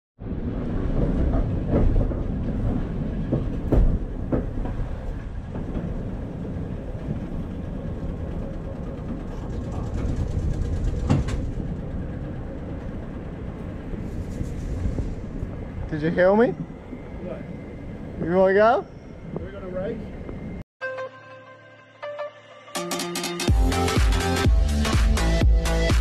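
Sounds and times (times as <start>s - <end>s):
streetcar wheels rumbling on rails: 0.2s - 20.6s
wheels clacking over rail joints: 0.2s - 20.6s.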